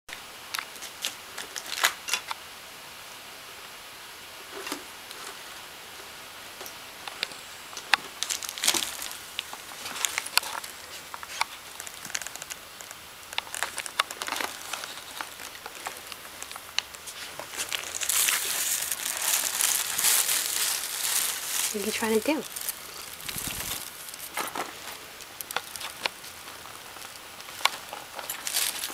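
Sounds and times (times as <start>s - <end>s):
plastic bag crinkling: 7.9s - 28.9s.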